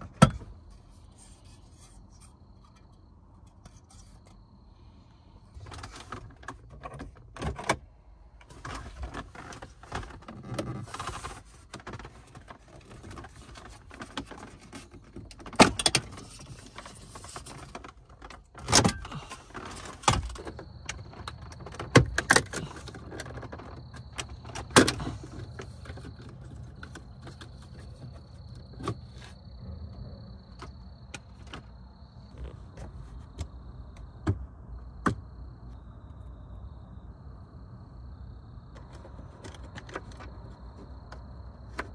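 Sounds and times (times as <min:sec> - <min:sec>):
plastic trim rubbing and scraping: 0:00.0 - 0:04.4, 0:08.5 - 0:29.4.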